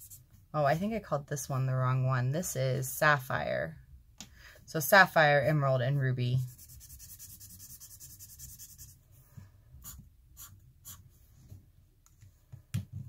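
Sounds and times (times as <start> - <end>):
marker scribbling on paper: 0.0 - 0.2, 6.4 - 9.0, 9.8 - 11.0
marker strokes drawing lines: 6.4 - 9.0, 9.8 - 11.2.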